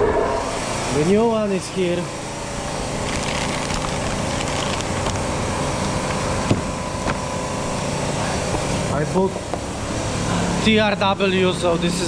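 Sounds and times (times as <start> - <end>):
motor humming: 1.8 - 8.7.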